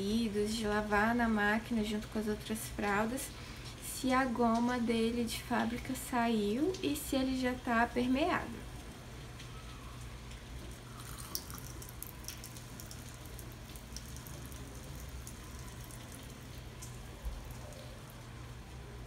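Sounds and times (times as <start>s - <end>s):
small drips and ticks: 2.8s - 4.9s, 5.5s - 7.4s, 8.6s - 19.0s
water trickling from a tap: 8.8s - 19.0s.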